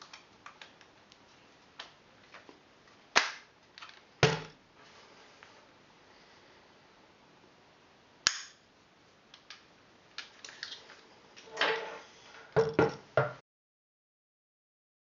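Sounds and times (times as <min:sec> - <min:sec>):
sharp snap of rifle: 0:08.2 - 0:08.6.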